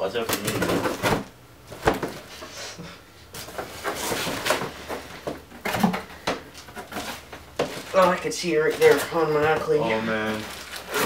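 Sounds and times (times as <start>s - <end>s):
cardboard scraping and rustling: 0.3s - 2.4s, 3.4s - 11.0s
packing tape tearing: 10.2s - 11.0s.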